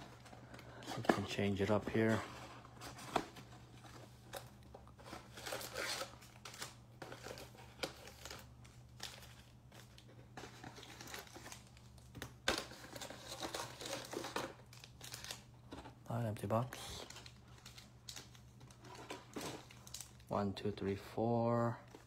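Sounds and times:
foil card packs crinkling: 0:00.0 - 0:02.2, 0:02.8 - 0:20.4.

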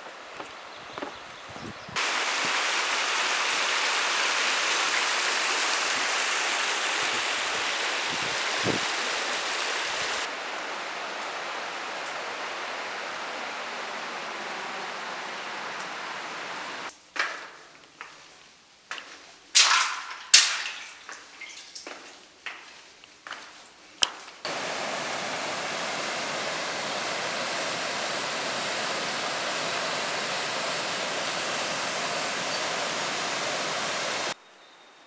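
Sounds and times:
rushing stream water: 0:02.0 - 0:16.9, 0:24.4 - 0:34.4.

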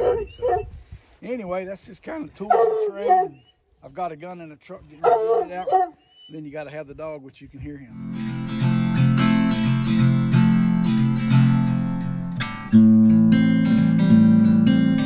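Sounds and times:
acoustic guitar strumming: 0:07.9 - 0:15.0.

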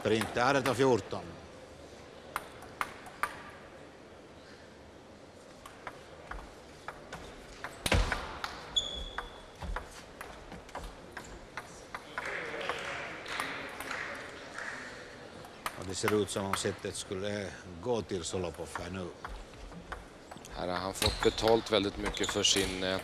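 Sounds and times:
table tennis ball clicking: 0:05.6 - 0:14.4, 0:18.3 - 0:23.0
shoe squeak: 0:08.7 - 0:09.6, 0:21.0 - 0:23.0
crowd noise: 0:09.9 - 0:23.0.

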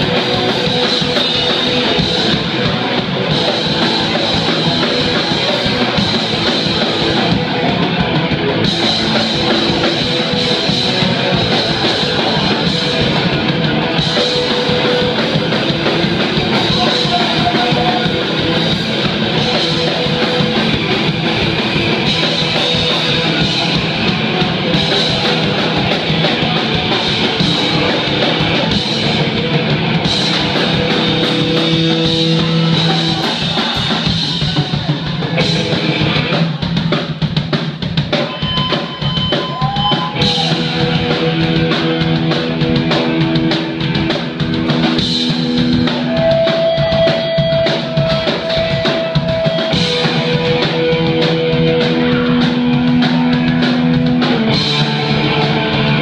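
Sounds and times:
distorted electric guitars: 0:00.0 - 0:56.0
drum kit: 0:00.0 - 0:56.0.

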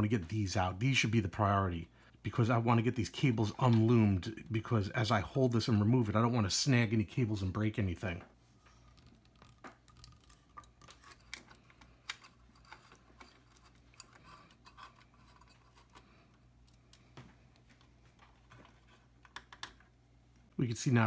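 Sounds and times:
low steady hum: 0:00.0 - 0:21.0
screwdriver clicks and scrapes on metal: 0:09.1 - 0:17.0.

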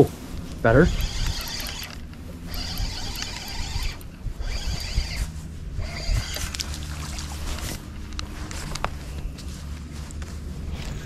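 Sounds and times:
steady low rumble: 0:00.0 - 0:11.0
fishing reel whirring: 0:00.6 - 0:08.9.

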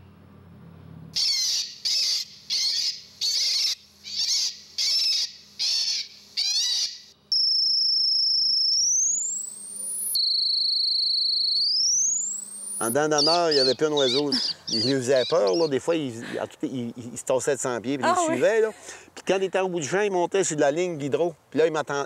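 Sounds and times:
rising electronic whistle tones: 0:01.2 - 0:14.2
recorded bird distress cries: 0:01.2 - 0:15.9.

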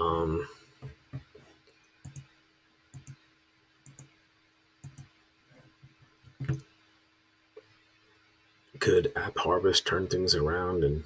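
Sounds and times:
computer mouse clicking: 0:02.0 - 0:02.3, 0:02.9 - 0:03.2, 0:03.8 - 0:04.2, 0:04.8 - 0:05.1.

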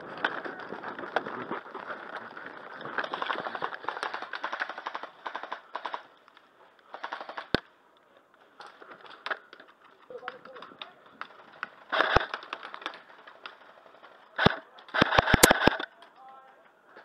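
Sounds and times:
airsoft rifles firing bursts: 0:03.0 - 0:06.1, 0:06.9 - 0:07.6, 0:11.4 - 0:13.7, 0:14.4 - 0:15.8
sharp crack: 0:10.2 - 0:13.6, 0:14.4 - 0:16.2.

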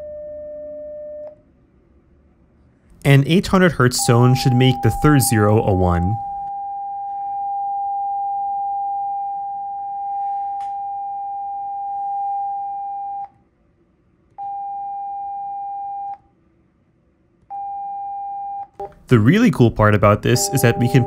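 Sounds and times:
sine test tone: 0:00.0 - 0:01.4, 0:04.0 - 0:13.4, 0:14.4 - 0:16.2, 0:17.5 - 0:19.0, 0:20.2 - 0:21.0.

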